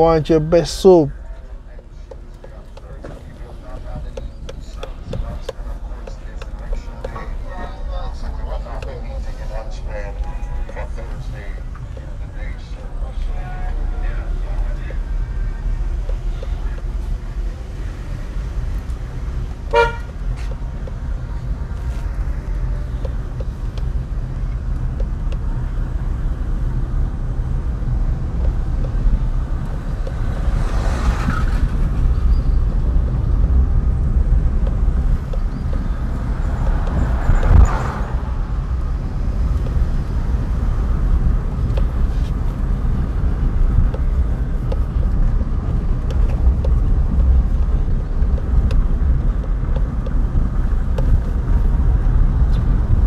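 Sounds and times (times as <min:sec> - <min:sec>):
car engine and tyres rumbling: 0:00.0 - 0:53.0
rushes of noise: 0:27.5 - 0:49.6.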